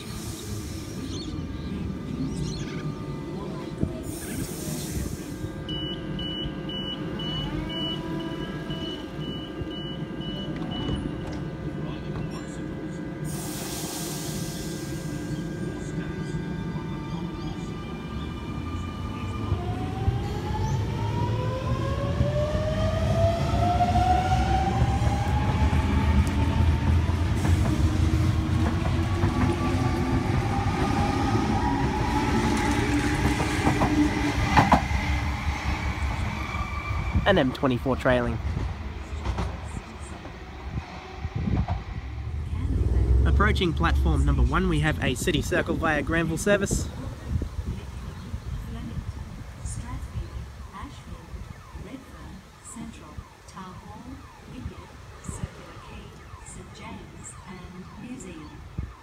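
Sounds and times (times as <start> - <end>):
low rumble of train equipment: 0.0 - 59.0
train door warning beeps: 5.1 - 19.6, 50.1 - 59.0.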